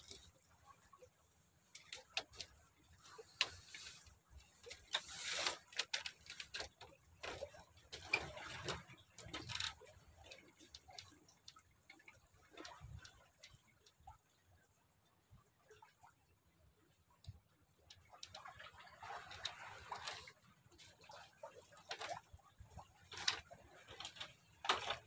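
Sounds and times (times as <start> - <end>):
small clicks and taps: 1.7 - 14.0
rustling scrapes: 2.3 - 6.7.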